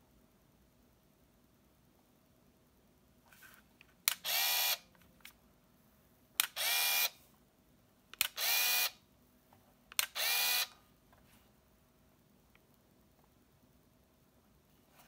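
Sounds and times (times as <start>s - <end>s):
camera shutter click: 4.1s - 4.8s, 6.4s - 7.1s, 8.2s - 9.0s, 10.0s - 10.7s.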